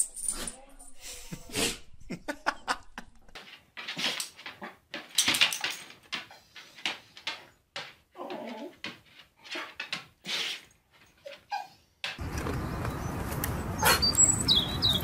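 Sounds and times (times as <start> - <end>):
dog sneezing: 10.2 - 10.7.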